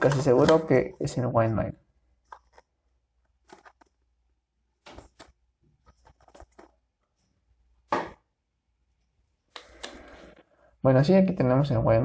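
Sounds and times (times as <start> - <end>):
box rustling and scraping: 3.4 - 4.0.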